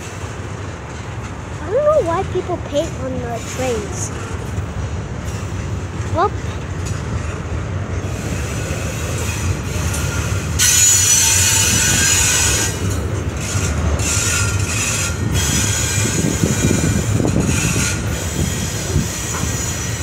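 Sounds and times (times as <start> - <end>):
train wheels rumbling on rail: 0.0 - 20.0
high-pitched wheel squeal: 8.2 - 20.0.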